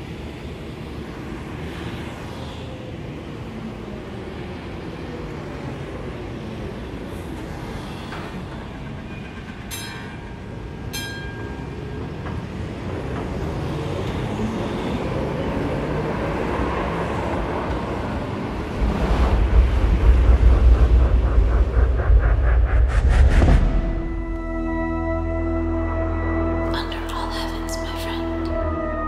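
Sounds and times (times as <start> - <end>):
electric tram rolling on tracks: 0.0 - 24.6
loud deep rumble: 18.6 - 25.3.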